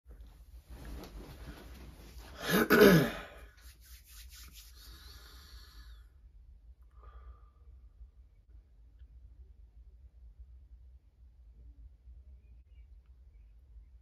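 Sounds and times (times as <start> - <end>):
faint rustling: 0.1 - 2.4
man clearing his throat: 2.4 - 3.4.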